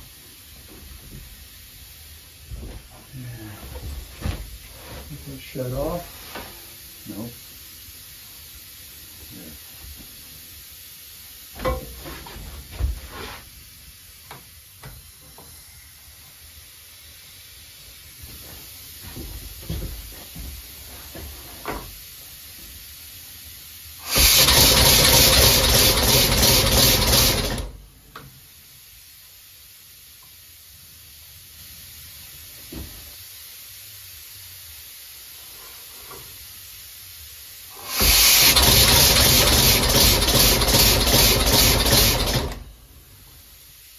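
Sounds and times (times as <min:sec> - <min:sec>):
compressed air hissing: 0:23.9 - 0:27.6, 0:31.2 - 0:42.7.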